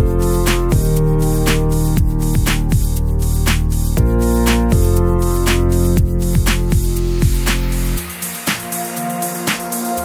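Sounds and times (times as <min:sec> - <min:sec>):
deep kick drum: 0:00.0 - 0:08.0.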